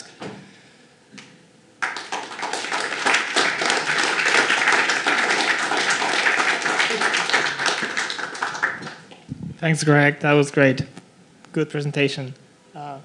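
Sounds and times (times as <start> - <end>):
audience applauding: 1.8 - 9.2.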